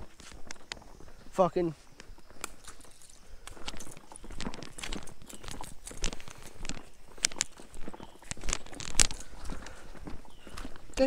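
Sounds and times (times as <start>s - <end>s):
footsteps crunching dry leaves: 0.0s - 11.0s.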